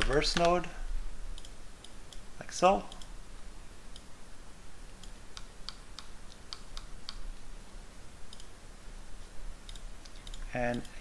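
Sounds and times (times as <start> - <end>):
keyboard and mouse clicks: 0.0 - 0.7, 1.3 - 2.2, 5.0 - 7.3, 8.3 - 8.5, 9.6 - 11.0
faint low hum: 0.0 - 11.0.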